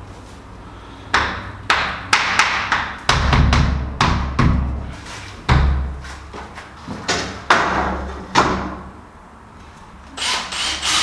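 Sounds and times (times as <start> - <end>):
hands thumping wooden panel: 1.2 - 4.8.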